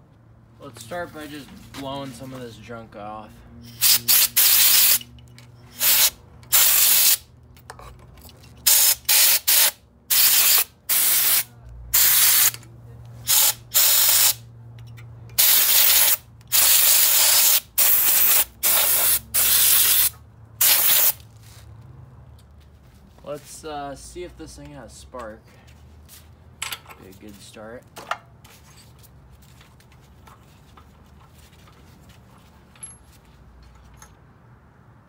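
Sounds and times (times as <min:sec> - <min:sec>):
compressed air hissing bursts: 0:03.7 - 0:05.1, 0:05.7 - 0:07.3, 0:08.7 - 0:12.6, 0:13.2 - 0:14.4, 0:15.4 - 0:21.2.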